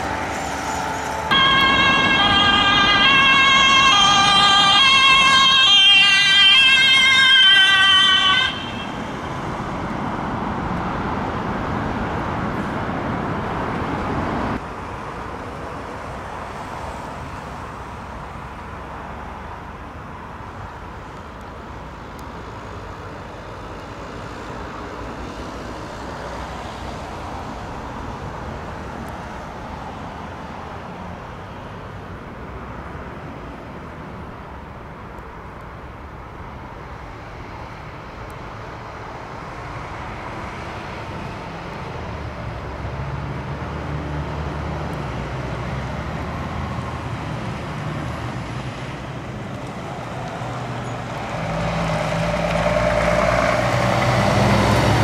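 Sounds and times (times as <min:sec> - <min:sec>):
cars driving past: 0:00.0 - 0:20.4, 0:36.6 - 0:55.0
truck engines: 0:00.0 - 0:55.0.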